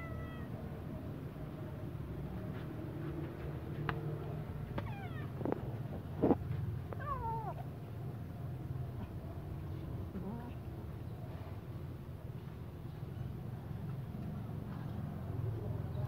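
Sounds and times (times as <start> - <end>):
cat meowing: 0.0 - 0.6, 4.8 - 5.4, 7.0 - 7.6.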